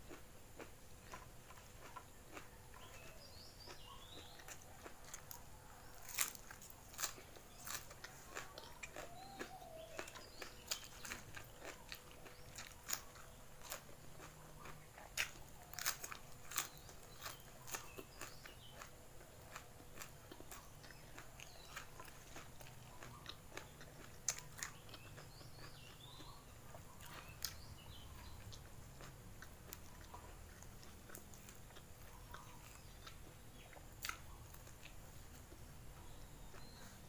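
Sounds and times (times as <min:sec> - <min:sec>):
person chewing food: 0:00.0 - 0:37.0
crisp crunches: 0:06.0 - 0:14.3.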